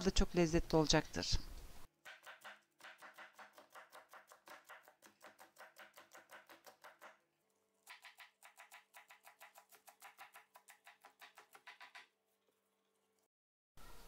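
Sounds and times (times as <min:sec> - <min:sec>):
knife chopping on plastic board: 0:02.0 - 0:07.2, 0:07.8 - 0:12.1.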